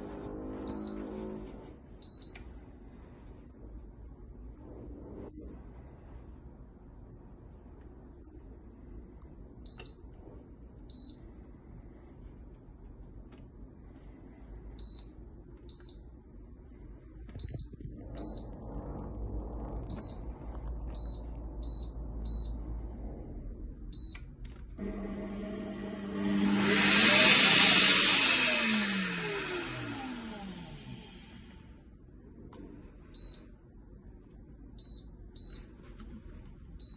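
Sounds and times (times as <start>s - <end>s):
blender motor running: 24.8s - 31.7s.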